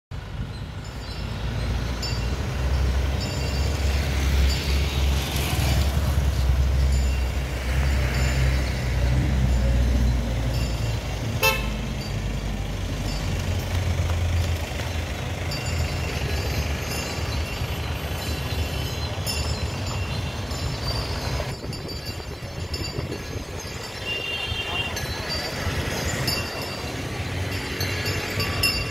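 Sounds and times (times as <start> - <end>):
vehicles passing with engine rumble: 0.1 - 28.9
vehicle horn toots: 11.4 - 11.8.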